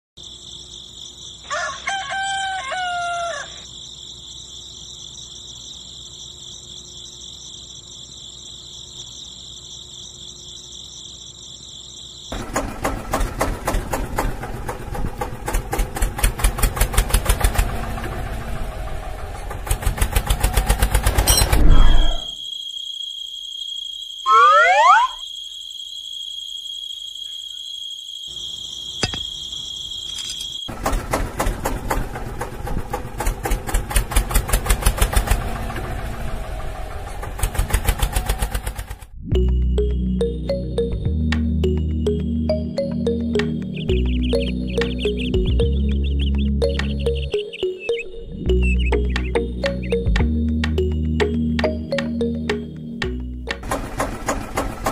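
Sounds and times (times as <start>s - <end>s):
insect chorus: 0.2s - 39.0s, 41.7s - 50.5s
rooster crowing: 1.4s - 3.7s
rapid mechanical knocking: 12.4s - 18.6s, 19.2s - 21.3s, 30.7s - 36.2s, 37.1s - 39.1s, 53.6s - 54.9s
gliding bird call: 24.3s - 25.2s, 43.6s - 50.1s.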